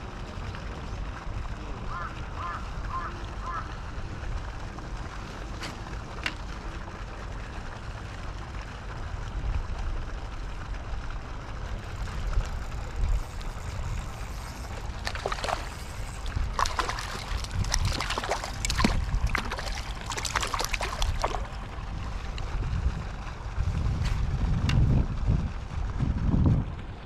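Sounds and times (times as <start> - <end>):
water splashing and sloshing: 0.0 - 26.0
wind rumble on microphone: 8.8 - 27.0.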